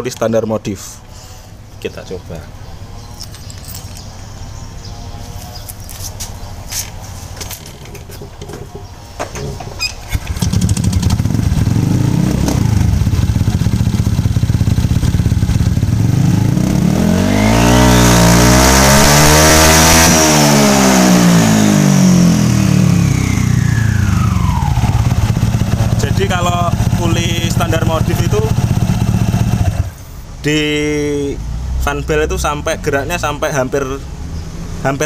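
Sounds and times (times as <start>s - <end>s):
high engine whine: 5.2s - 30.0s
scooter engine idling and revving: 10.1s - 30.1s.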